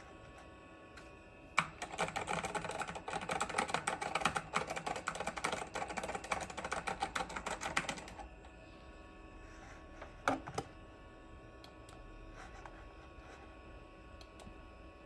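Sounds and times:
fast typing on computer keyboard: 0:01.6 - 0:08.3.

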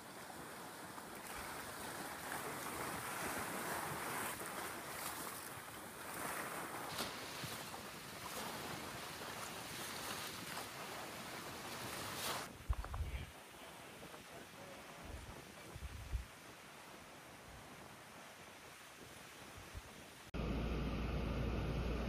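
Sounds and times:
choppy water sloshing: 0:00.0 - 0:20.0
wind buffeting microphone: 0:11.2 - 0:16.6.

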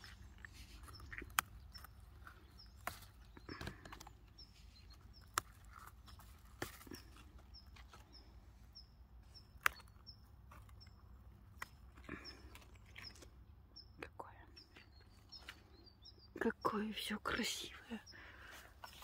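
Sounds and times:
stems snapping: 0:00.0 - 0:08.2, 0:09.5 - 0:13.5.

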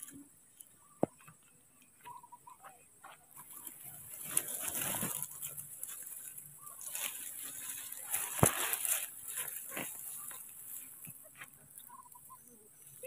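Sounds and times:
grass rustling and crackling: 0:03.0 - 0:13.0.

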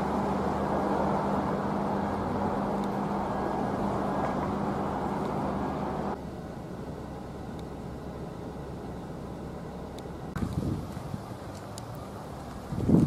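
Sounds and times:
engine hum: 0:00.0 - 0:13.0
outdoor background noise: 0:00.0 - 0:13.0
wind rumble on microphone: 0:10.4 - 0:11.5, 0:12.4 - 0:13.0.

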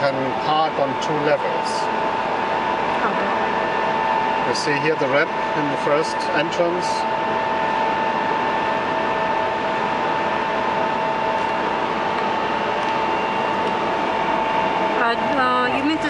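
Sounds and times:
ventilation hum: 0:00.0 - 0:16.0.

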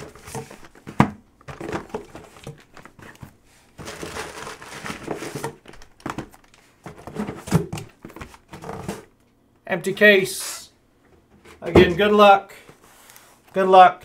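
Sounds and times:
box bumps: 0:00.0 - 0:03.2, 0:11.6 - 0:12.2
cardboard rustling and scraping: 0:00.0 - 0:09.1.

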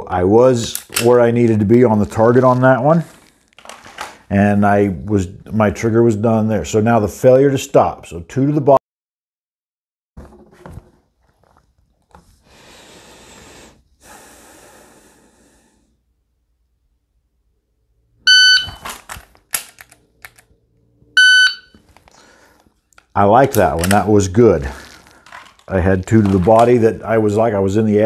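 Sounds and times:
shot timer beep: 0:18.3 - 0:18.8, 0:21.2 - 0:21.8
rustling: 0:24.6 - 0:27.0.

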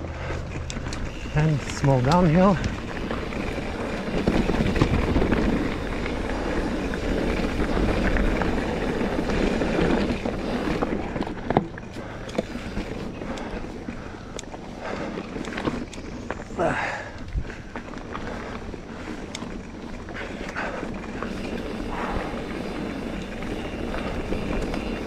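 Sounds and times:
wind rushing over microphone: 0:00.0 - 0:13.9
bike tyre noise on dirt: 0:00.0 - 0:25.0
bike clicks and knocks: 0:00.2 - 0:25.0.

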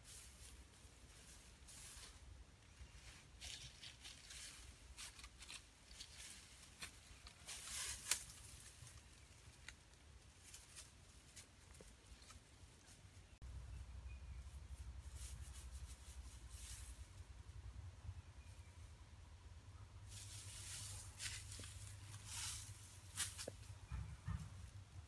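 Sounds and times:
dry leaves rustling and crackling: 0:00.0 - 0:13.2, 0:14.4 - 0:17.3, 0:20.1 - 0:23.8.

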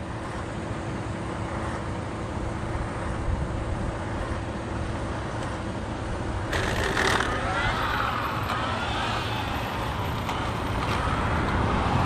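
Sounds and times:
low outdoor rumble and hiss: 0:00.0 - 0:12.0
rc car launching on asphalt: 0:06.5 - 0:12.0.

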